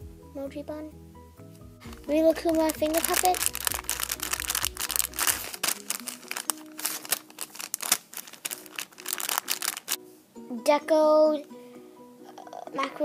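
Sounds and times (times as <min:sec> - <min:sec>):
plastic packaging crinkling: 0:01.8 - 0:10.0.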